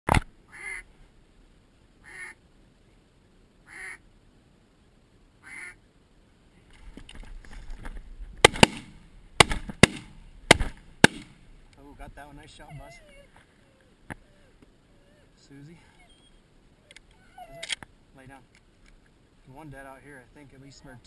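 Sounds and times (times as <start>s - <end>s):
rustle of movement: 0.2s - 21.0s
duck quacking: 0.5s - 0.9s, 2.0s - 2.4s, 3.7s - 4.0s, 5.4s - 5.8s
shotgun shots: 8.4s - 11.4s.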